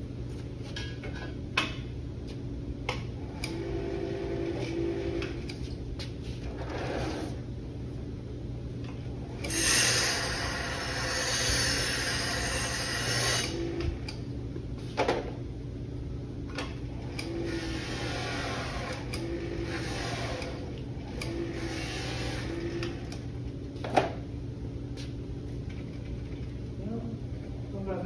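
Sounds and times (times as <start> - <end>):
motor humming: 9.1 - 14.2, 16.8 - 23.4
buffing wheel hissing on metal: 9.5 - 13.6.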